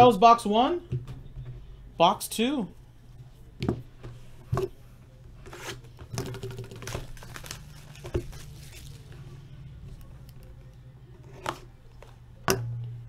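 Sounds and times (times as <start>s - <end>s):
plastic wrap tearing and crinkling: 5.5s - 9.2s.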